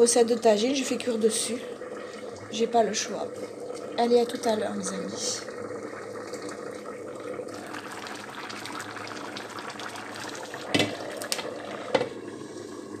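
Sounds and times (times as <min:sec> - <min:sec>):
pot simmering and bubbling: 0:00.0 - 0:13.0.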